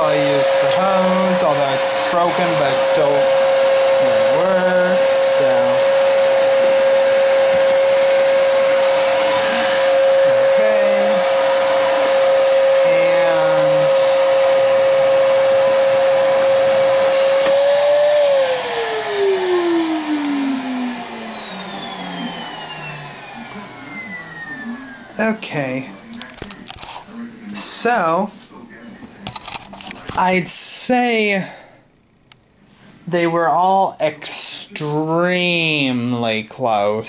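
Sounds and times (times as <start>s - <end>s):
upright vacuum cleaner whining: 0.0s - 27.8s.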